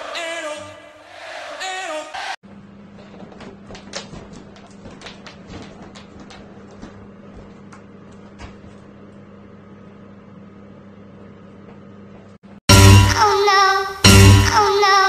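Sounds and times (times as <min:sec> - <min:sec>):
claws clicking on hard floor: 0:03.1 - 0:08.6
loud music: 0:12.7 - 0:15.0.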